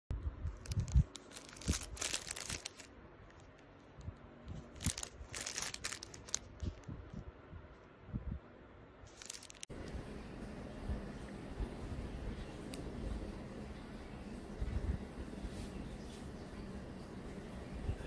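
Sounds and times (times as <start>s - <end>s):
plastic bag crinkling and tearing: 0.4s - 7.0s, 9.1s - 9.7s.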